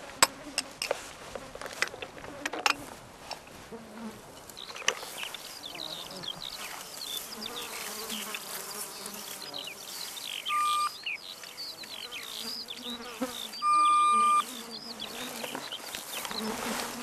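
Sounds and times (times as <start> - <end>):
birds chirping: 4.4 - 17.0
insects chirping: 4.4 - 17.0
metal detector electronic beeps: 10.5 - 11.0, 13.6 - 14.4.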